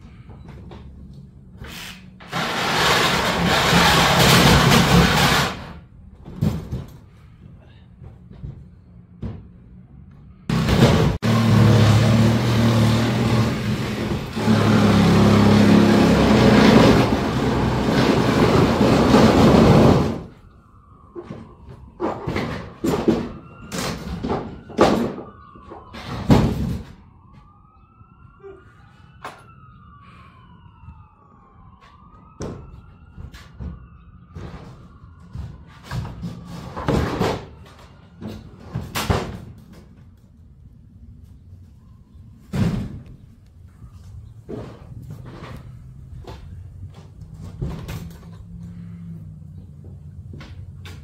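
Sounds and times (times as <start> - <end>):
distant siren wailing: 8.7 - 39.9, 41.0 - 51.0
sharp knocks of panels: 22.0 - 27.0, 38.2 - 40.0, 42.5 - 43.1.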